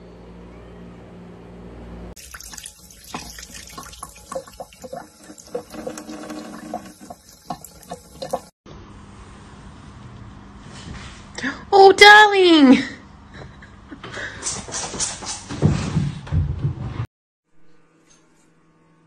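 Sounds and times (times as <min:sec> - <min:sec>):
tap water running into sink: 0:02.2 - 0:08.5.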